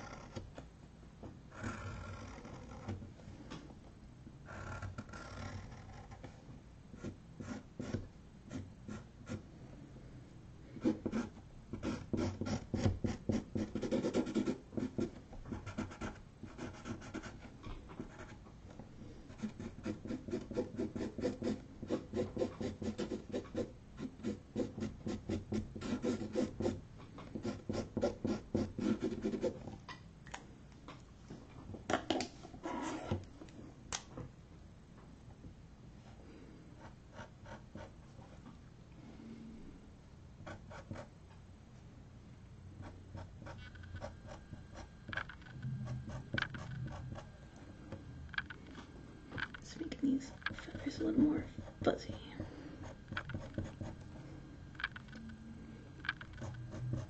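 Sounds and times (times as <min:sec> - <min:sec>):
marker scratching on canvas board: 0:04.5 - 0:09.4, 0:10.8 - 0:18.4, 0:19.3 - 0:29.7, 0:32.6 - 0:33.2, 0:45.6 - 0:47.3, 0:50.3 - 0:54.0, 0:56.2 - 0:57.0.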